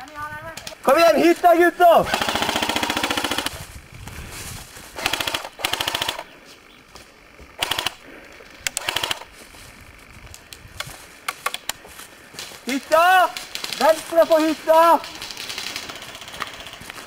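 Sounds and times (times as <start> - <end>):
airsoft gun bursts: 2.0 - 3.6, 5.0 - 6.4, 7.6 - 9.3, 13.2 - 17.0.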